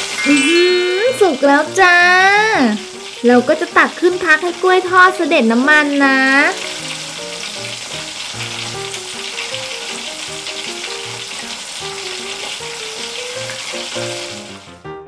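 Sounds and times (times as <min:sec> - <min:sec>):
background music: 0:00.0 - 0:08.2
food deep-frying in oil: 0:00.0 - 0:14.8.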